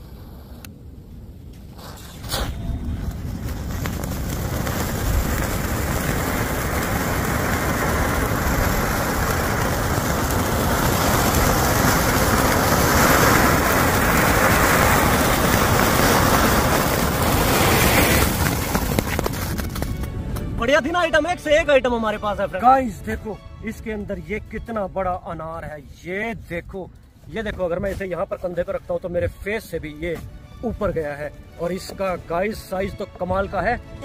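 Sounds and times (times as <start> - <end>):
firecracker hissing: 0.0 - 21.5.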